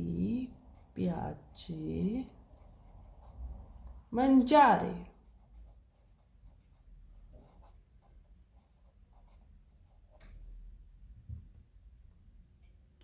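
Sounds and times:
felt-tip pen scratching on paper: 0:00.7 - 0:03.4, 0:05.1 - 0:09.5.

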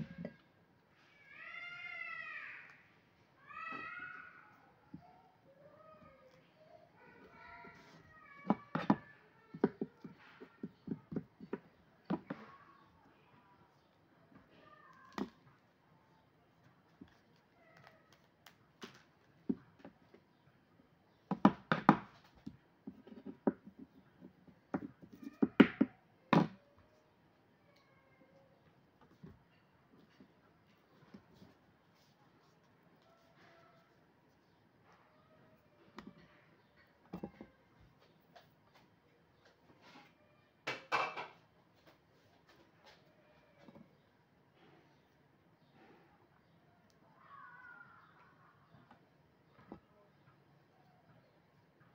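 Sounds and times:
kitchen things knocking and clattering: 0:40.7 - 0:41.4.

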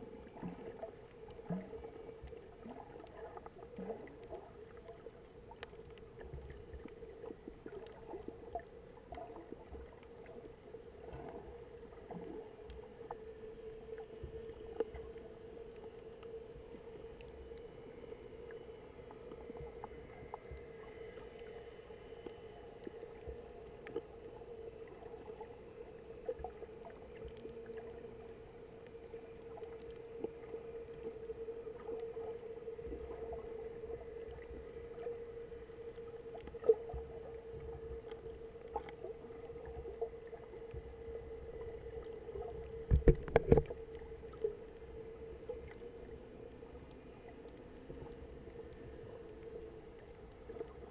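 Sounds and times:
faint underwater clicks: 0:00.0 - 0:50.9
low underwater hum: 0:00.0 - 0:50.9.

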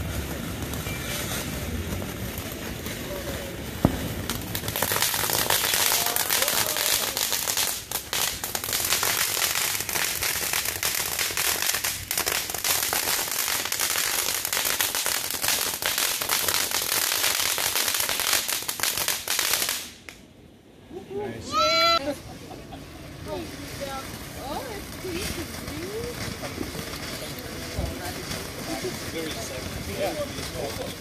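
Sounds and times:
firework fountain crackling and hissing: 0:00.0 - 0:31.0.

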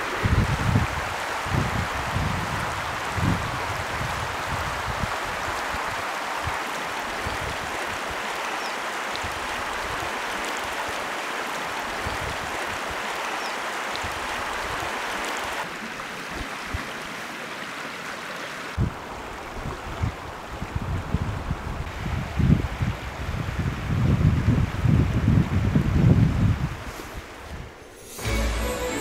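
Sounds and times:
river rushing over stones: 0:00.0 - 0:20.5.

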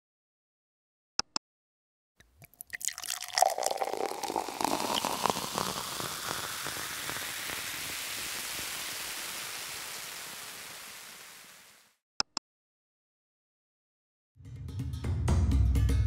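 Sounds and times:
steady rain-like water hiss: 0:03.6 - 0:12.0.

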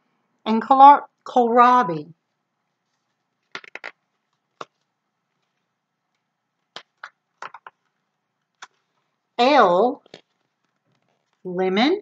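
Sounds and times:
book pages turning: 0:02.7 - 0:09.0, 0:10.0 - 0:11.5.

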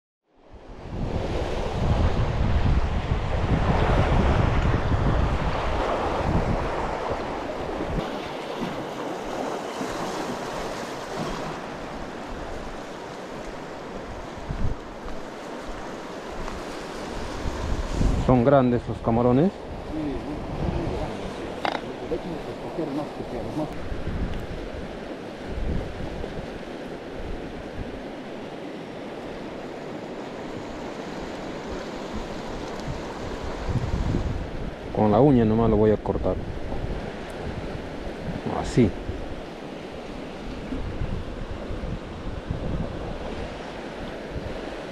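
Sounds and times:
wind buffeting microphone: 0:00.6 - 0:28.2, 0:30.6 - 0:44.9.

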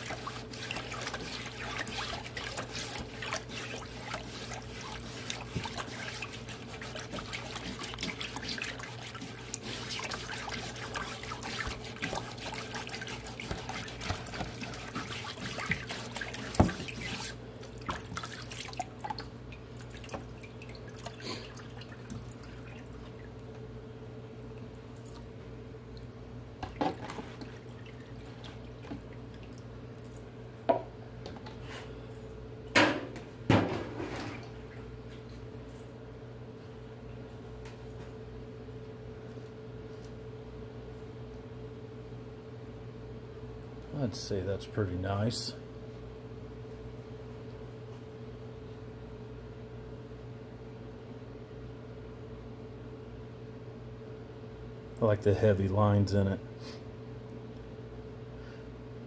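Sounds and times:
brush scrubbing wood board: 0:00.0 - 0:18.0
water splashing and dripping: 0:00.0 - 0:23.4
low steady hum: 0:00.0 - 0:59.0.

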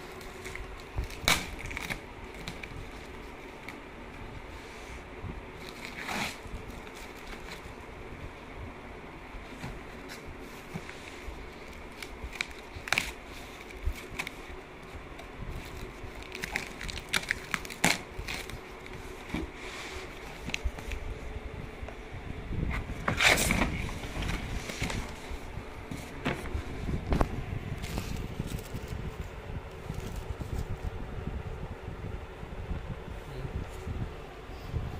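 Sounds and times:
packing tape ripping: 0:00.1 - 0:03.8, 0:05.6 - 0:07.8, 0:11.6 - 0:14.5, 0:15.5 - 0:19.0
cardboard flaps scraping: 0:05.6 - 0:07.8, 0:09.4 - 0:14.6, 0:22.6 - 0:31.0.

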